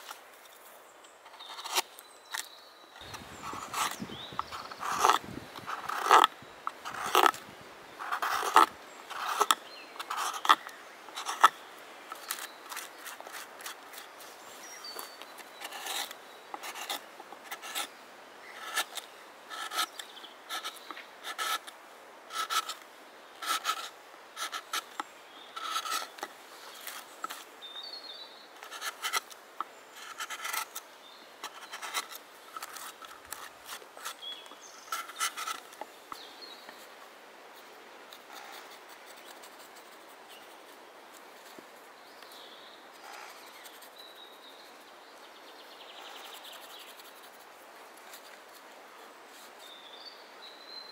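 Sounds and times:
carving blade scraping wood: 0:01.3 - 0:01.9, 0:03.0 - 0:07.4, 0:08.0 - 0:11.6, 0:15.5 - 0:17.9, 0:18.6 - 0:21.7, 0:22.3 - 0:22.8, 0:23.4 - 0:25.0, 0:25.6 - 0:27.4, 0:28.6 - 0:29.4, 0:30.0 - 0:30.8, 0:31.4 - 0:35.7.

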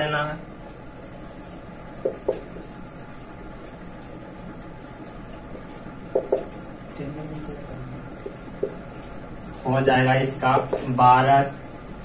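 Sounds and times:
cricket trilling: 0:00.0 - 0:12.0
marker knocking on whiteboard: 0:02.0 - 0:02.6, 0:06.1 - 0:06.6, 0:08.2 - 0:08.8, 0:10.5 - 0:11.0.

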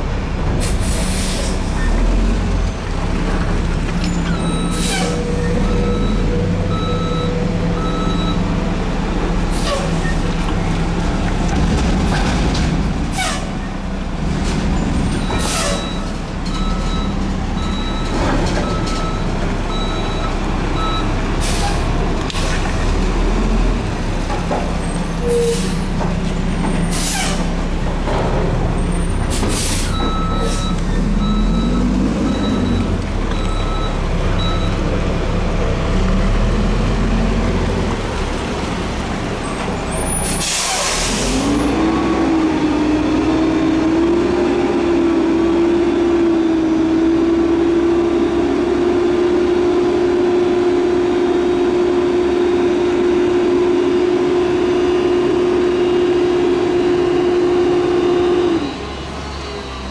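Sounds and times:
diesel engine running: 0:00.0 - 0:59.9
reverse alarm beeping: 0:05.7 - 0:08.5, 0:29.9 - 0:34.8
air brake hisses: 0:29.3 - 0:30.6, 0:40.2 - 0:41.4.

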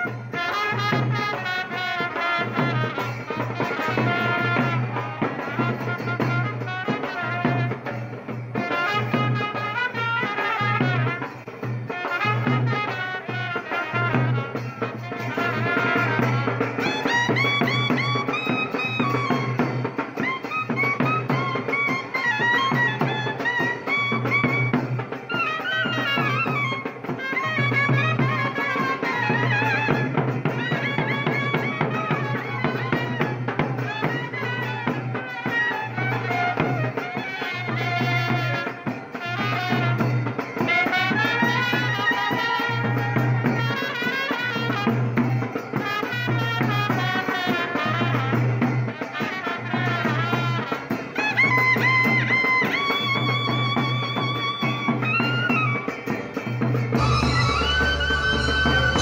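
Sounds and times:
melody over low beat: 0:57.0 - 0:59.0.

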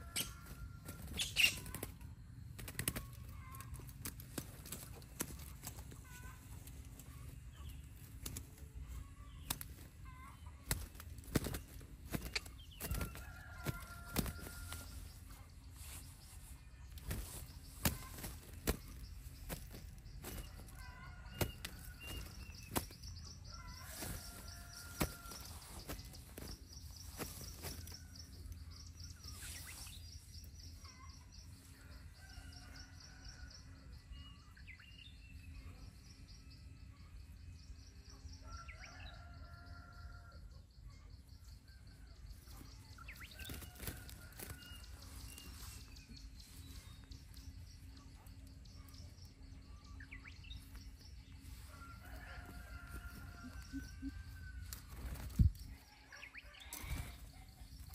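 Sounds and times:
small birds chirping: 0:00.0 - 0:57.9
bird wings flapping against netting: 0:00.3 - 0:07.4, 0:08.0 - 0:15.1, 0:16.9 - 0:28.4, 0:43.0 - 0:45.9, 0:54.6 - 0:57.9.

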